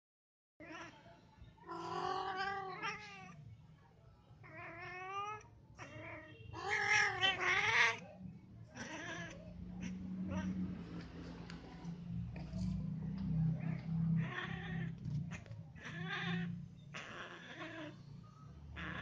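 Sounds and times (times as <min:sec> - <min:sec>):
cats yowling: 0:00.6 - 0:03.4, 0:04.4 - 0:08.0, 0:08.7 - 0:11.1, 0:13.1 - 0:19.0.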